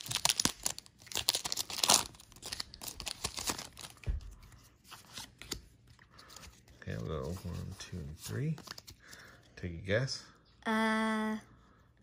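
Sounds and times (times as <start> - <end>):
foil wrapper tearing and crinkling: 0.0 - 4.1.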